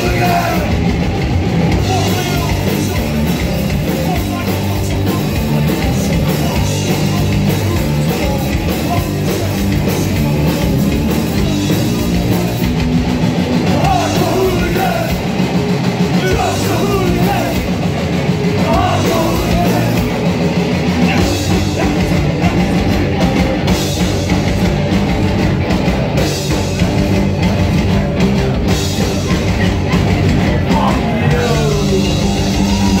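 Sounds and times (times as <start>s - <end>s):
shouted lead vocal: 0.0s - 1.0s, 1.7s - 12.7s, 13.6s - 15.4s, 16.1s - 17.9s, 18.5s - 20.3s, 20.9s - 23.4s, 26.8s - 33.0s
distorted electric guitar: 0.0s - 33.0s
pounding drums: 0.0s - 33.0s.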